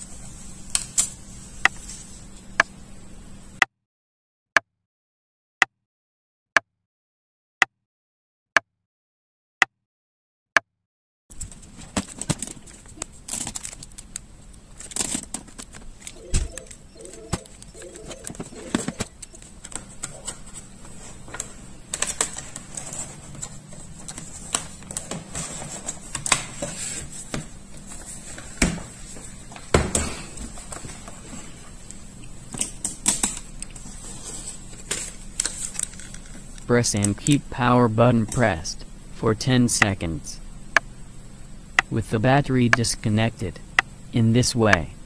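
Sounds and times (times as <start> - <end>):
low hum: 11.4 - 26.1.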